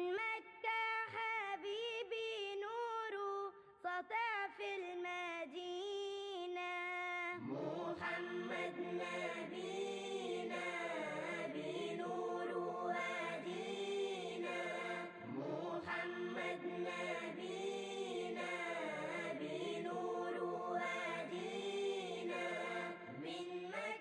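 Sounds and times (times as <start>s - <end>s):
solo voice singing a chant: 7.3s - 9.6s
choir singing: 7.4s - 24.0s.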